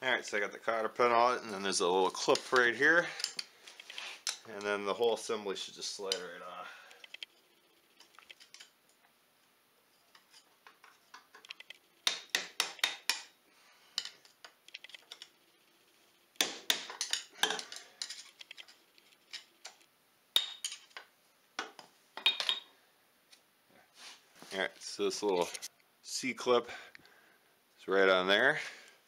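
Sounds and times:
metal tools clinking and scraping: 2.2 - 4.8, 14.0 - 15.4, 16.8 - 19.8, 20.4 - 21.0, 22.2 - 22.7.

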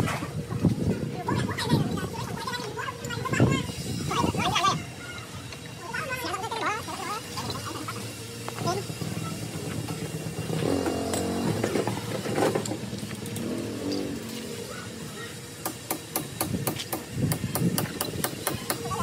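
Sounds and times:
motorcycle engine running: 7.4 - 15.4.

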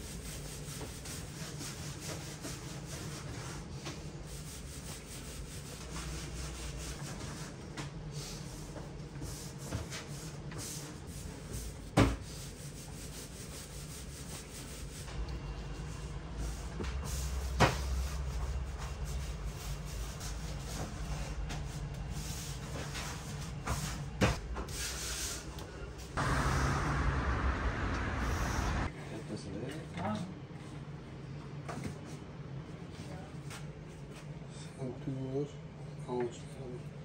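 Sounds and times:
steady low hum: 26.1 - 28.9.

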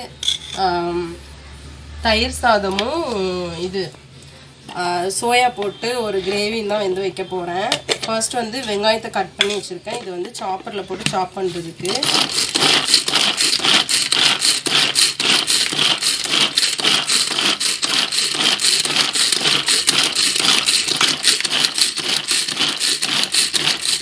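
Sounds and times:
blades chopping onion: 11.8 - 24.0
pull cord food chopper whirring: 11.8 - 24.0.

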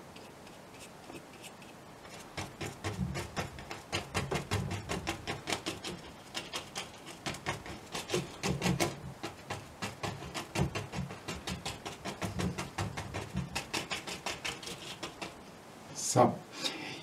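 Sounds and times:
paintbrush tapping on canvas: 2.1 - 15.4.

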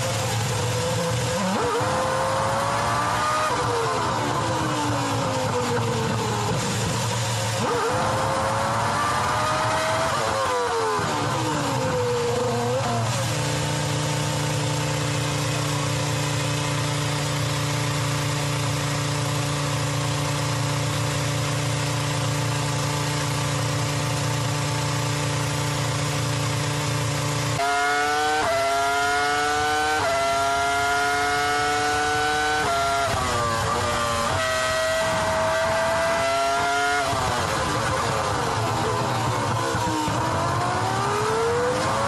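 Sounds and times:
racing car engine revving: 0.0 - 15.1, 26.4 - 42.0
engine upshifts: 0.0 - 20.5, 22.0 - 42.0.

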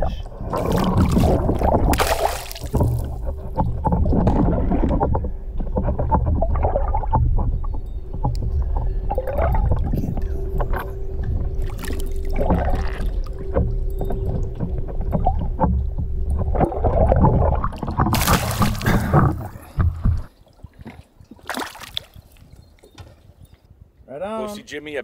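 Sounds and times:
steady hum: 0.0 - 20.3
water sloshing underwater: 0.0 - 23.4
fish splashing at surface: 0.5 - 3.3, 18.1 - 19.5
splashing rush of water: 0.5 - 3.4, 18.1 - 19.5.

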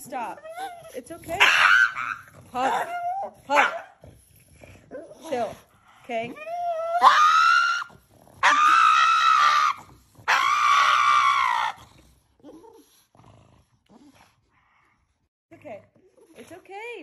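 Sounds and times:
dog screaming: 1.3 - 3.9, 6.5 - 11.8.

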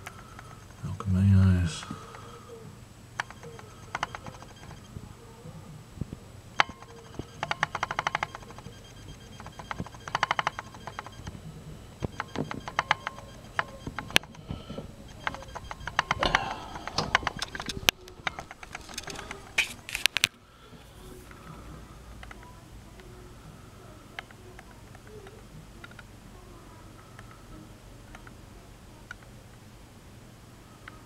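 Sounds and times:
rapid clicking: 0.0 - 0.9, 3.1 - 5.0, 6.6 - 11.4, 12.0 - 20.4
faint low hum: 0.0 - 31.0.

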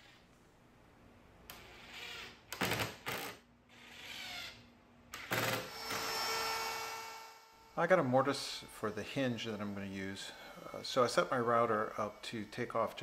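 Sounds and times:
drill boring into wood: 1.8 - 4.6, 5.2 - 7.4.

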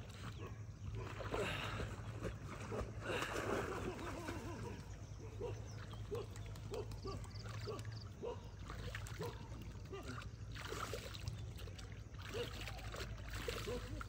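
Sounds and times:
dog snorting while swimming: 0.3 - 10.9.

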